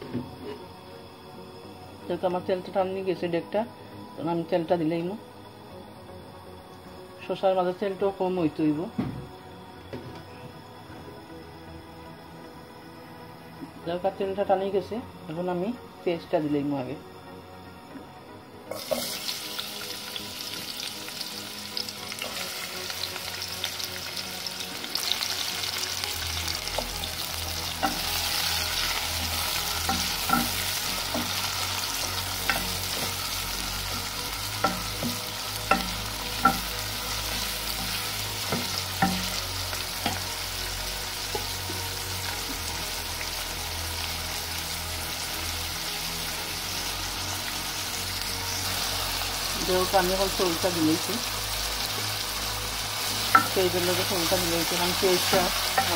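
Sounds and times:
onions sizzling in hot oil: 18.7s - 55.9s
wooden spoon knocking on pot: 34.7s - 36.7s.

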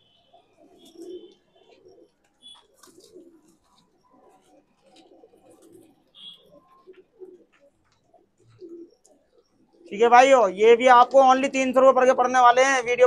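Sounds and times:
pigeons cooing: 0.0s - 10.4s.

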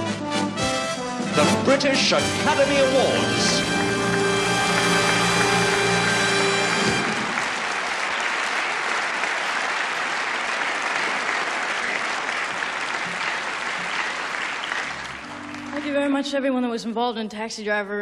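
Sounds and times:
music chord: 1.4s - 7.4s, 14.7s - 16.4s
large audience applauding: 1.8s - 16.0s.

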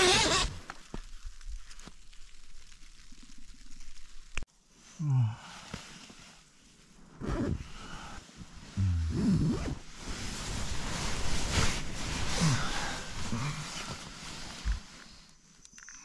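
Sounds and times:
nylon fabric rustling: 5.8s - 15.3s.

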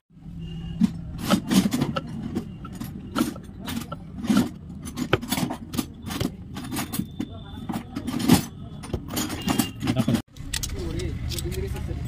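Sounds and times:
metal cover clicks and scrapes: 0.8s - 11.7s.

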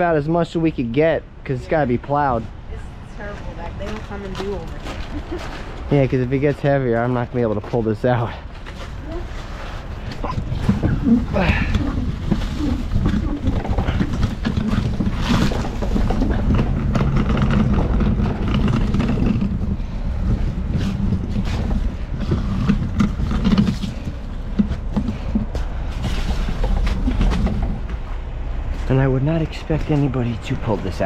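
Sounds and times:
garbage truck engine under load: 8.4s - 30.0s
knocks and clanks: 9.9s - 31.0s.

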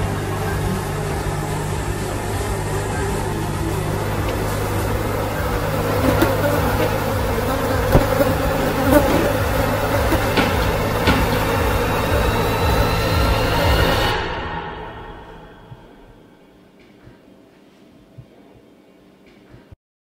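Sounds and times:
fly buzzing: 0.0s - 14.2s
short knocks: 7.8s - 12.3s.

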